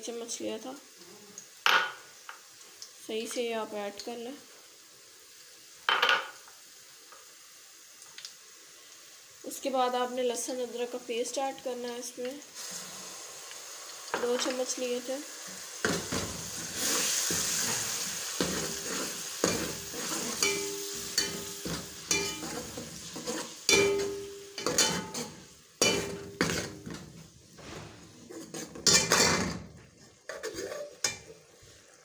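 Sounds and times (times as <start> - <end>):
hot oil sizzling: 0.0 - 32.0
metal ladle scraping a pot: 18.6 - 21.4, 22.1 - 24.0, 27.6 - 29.6, 30.3 - 31.3.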